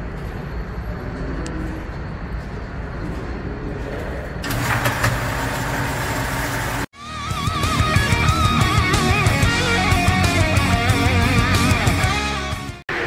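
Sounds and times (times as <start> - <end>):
low mechanical hum: 0.0 - 6.9
rock music: 7.0 - 12.8.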